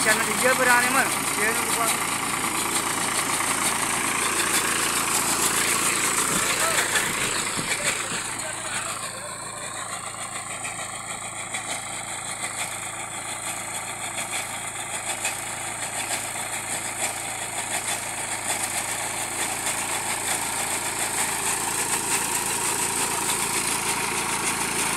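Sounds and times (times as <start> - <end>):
reaper clattering: 0.0 - 10.9
tractor diesel engine running: 0.0 - 24.9.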